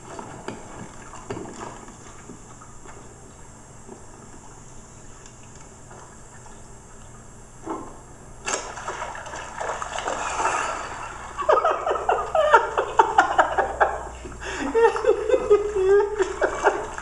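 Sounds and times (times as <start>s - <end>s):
fish thrashing and splashing: 8.4s - 11.4s.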